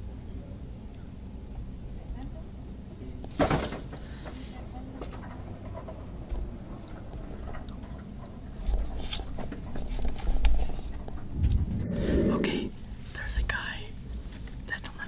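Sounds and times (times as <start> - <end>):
camera handling rumbling bumps: 11.1 - 12.3.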